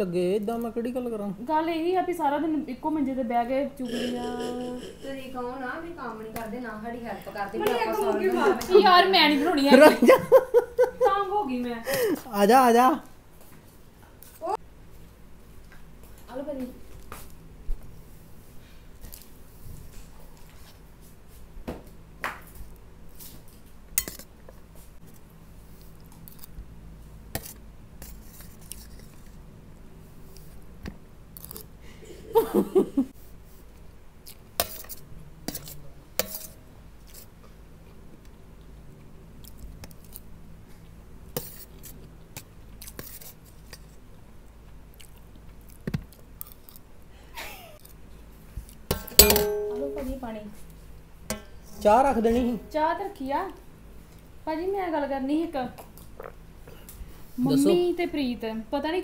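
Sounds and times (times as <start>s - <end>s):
metal spoon scraping steel plate: 3.8s - 5.6s, 34.6s - 36.6s
spoon clinking on steel plate: 3.9s - 5.2s, 48.9s - 50.2s
chewing: 44.6s - 46.9s.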